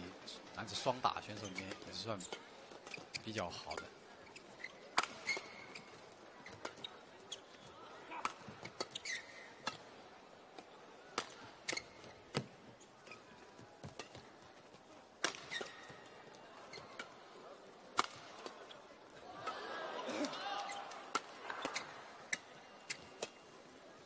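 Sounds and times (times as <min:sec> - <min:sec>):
shoes squeaking on court floor: 0:00.0 - 0:19.6, 0:20.2 - 0:24.0
racket hitting shuttlecock: 0:11.1 - 0:12.5, 0:15.2 - 0:16.0, 0:18.0 - 0:18.5, 0:20.8 - 0:23.4.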